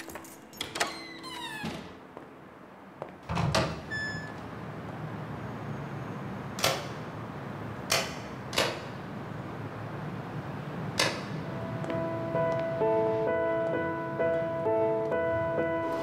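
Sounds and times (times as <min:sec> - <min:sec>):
door opening with thud: 0:00.0 - 0:02.0.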